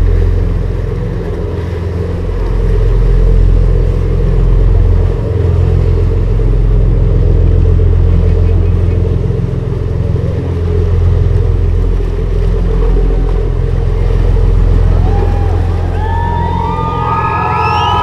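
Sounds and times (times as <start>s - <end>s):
rushing water: 0.0s - 18.0s
ship diesel engines droning: 0.0s - 18.0s
high whistle-like tones: 15.9s - 18.0s.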